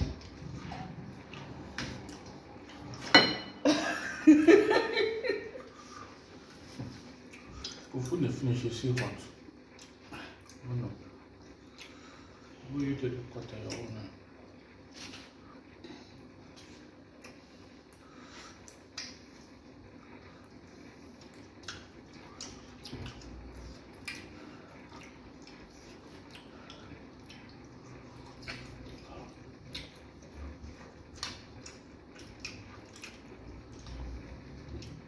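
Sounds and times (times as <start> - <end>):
wet eating squishes and smacks: 0.0 - 3.0, 6.4 - 14.1, 16.1 - 35.0.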